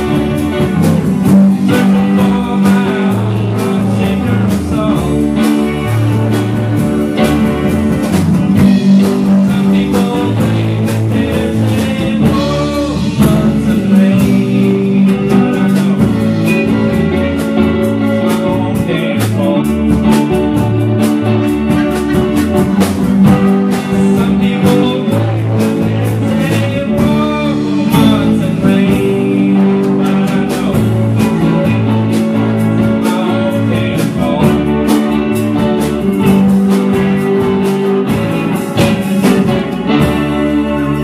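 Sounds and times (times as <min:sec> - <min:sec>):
live blues-rock band playing: 0:00.0 - 0:41.0
drum hits: 0:19.8 - 0:29.4.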